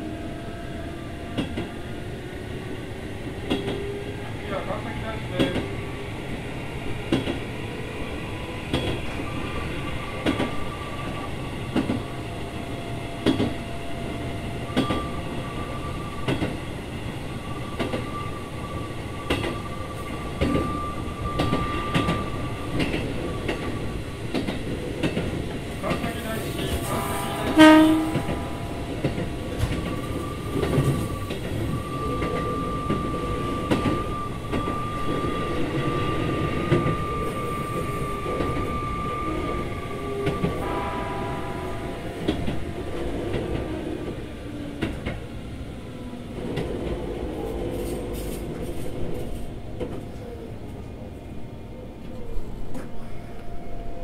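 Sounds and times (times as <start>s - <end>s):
train wheels rolling on rails: 0.2s - 54.0s.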